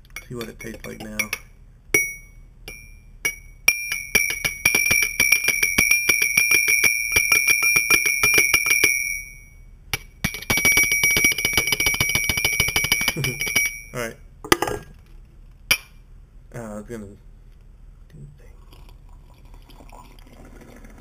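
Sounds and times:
spoon clinking in ceramic mug: 0.2s - 4.6s.

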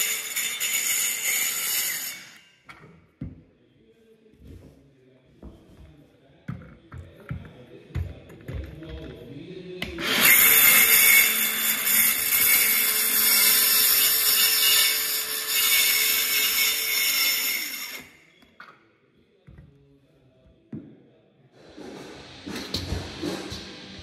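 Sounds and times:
circular saw cutting wood: 0.0s - 2.4s, 10.0s - 18.2s.

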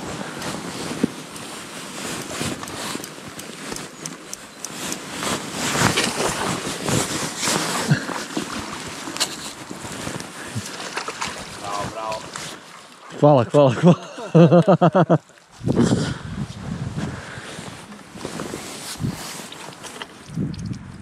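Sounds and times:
fishing gear rustling and clicking: 0.0s - 13.2s, 17.6s - 21.0s
wind buffeting microphone: 15.5s - 17.8s, 18.9s - 19.3s, 20.2s - 21.0s.

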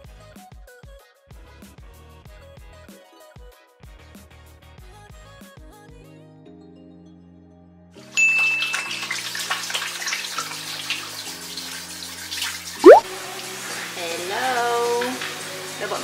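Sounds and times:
brief high ding: 8.2s - 9.0s
watery splashing hiss: 13.4s - 16.0s.

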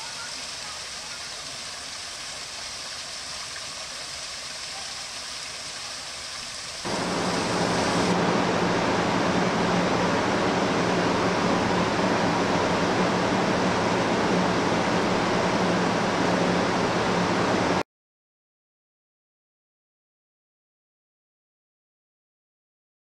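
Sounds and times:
water trickling over rocks: 0.0s - 8.1s
fountain splashing into basin: 0.0s - 16.5s
low hum: 6.9s - 17.8s.

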